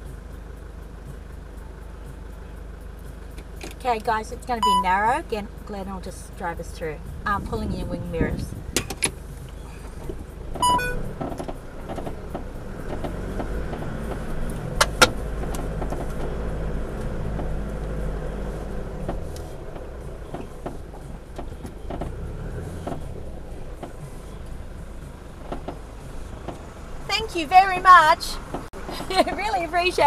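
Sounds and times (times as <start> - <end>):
engine running at a crawl: 0.0 - 30.0
short electronic beep: 4.6 - 4.9, 10.6 - 11.1.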